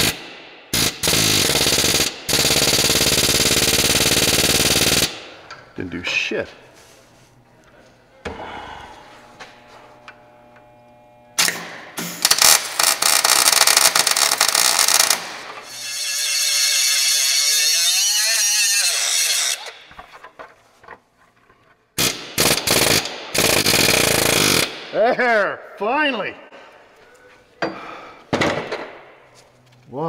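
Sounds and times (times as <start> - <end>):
pneumatic air hammer hammering: 0.0 - 5.2, 11.4 - 15.7, 22.0 - 24.8.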